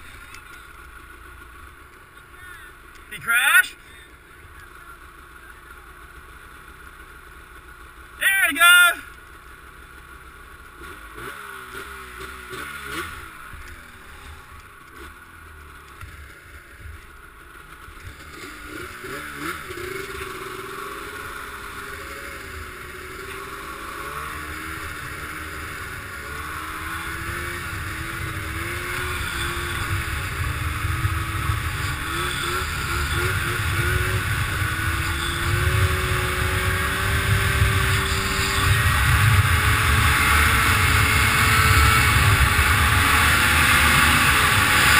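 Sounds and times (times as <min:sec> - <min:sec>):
snowmobile engine running: 0:00.0 - 0:44.9
rush of noise: 0:18.2 - 0:44.9.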